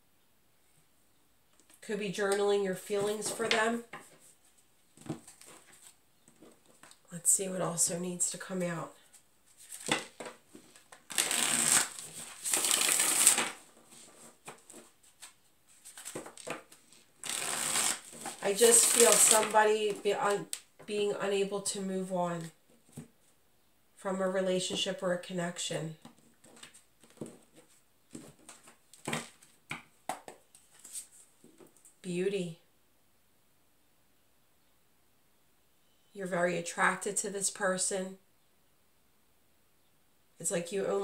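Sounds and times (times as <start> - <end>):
cards shuffling: 2.9 - 7.0, 9.1 - 20.6
cards tapping: 28.2 - 30.4.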